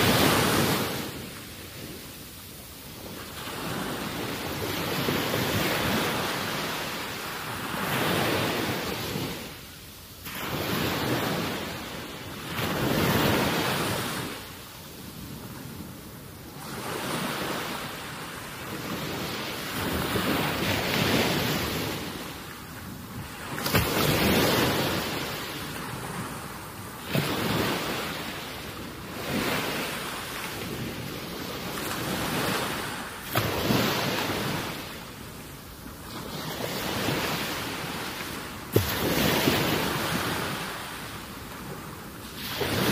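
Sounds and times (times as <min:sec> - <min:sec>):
small waves on rocky shore: 0:10.2 - 0:14.5, 0:16.5 - 0:35.1, 0:36.0 - 0:42.9.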